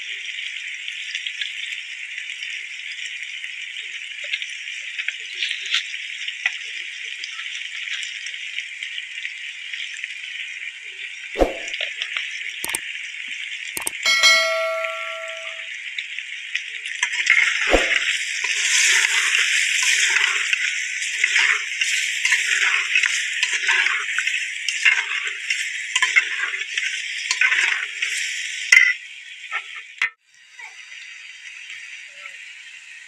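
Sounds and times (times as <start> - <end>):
food sizzling: 17.0 - 33.0.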